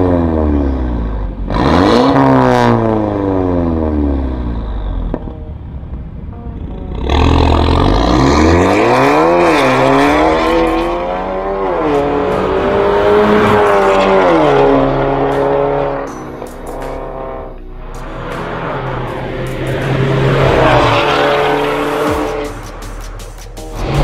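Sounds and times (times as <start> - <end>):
car engine revving hard: 0.0 - 4.8, 7.0 - 16.1, 18.8 - 22.9.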